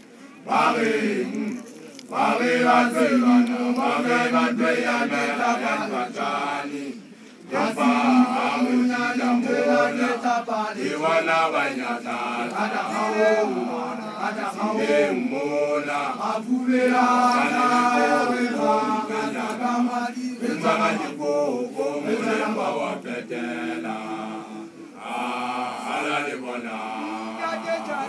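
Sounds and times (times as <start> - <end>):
man chanting: 26.7 - 28.0.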